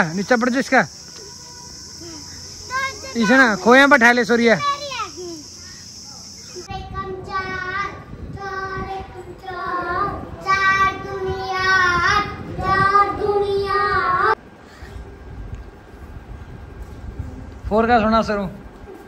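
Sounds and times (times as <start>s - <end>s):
child singing: 6.7s - 14.4s.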